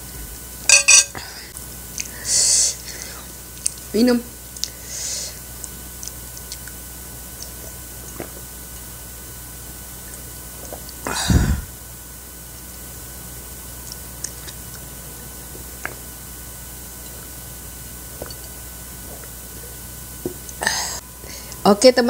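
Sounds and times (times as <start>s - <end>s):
loud swallowing gulp: 10.7s - 11.8s.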